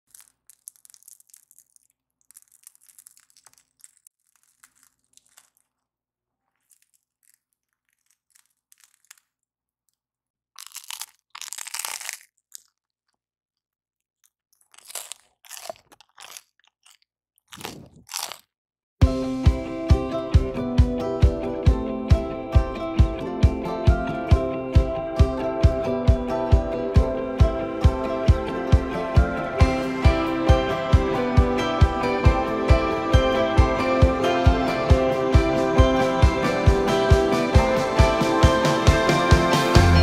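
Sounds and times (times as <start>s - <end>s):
crunching bites into bread: 0.0s - 5.9s, 6.5s - 9.5s, 10.6s - 13.2s, 14.2s - 18.6s
bread crust crackling: 0.0s - 13.2s, 14.2s - 18.5s.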